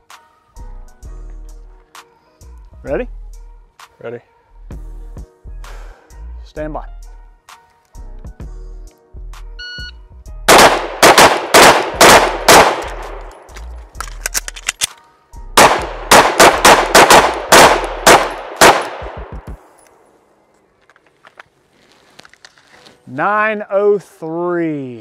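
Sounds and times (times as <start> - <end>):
shot timer beep: 9.6 - 10.0
pistol shots: 10.5 - 13.3, 15.6 - 19.4.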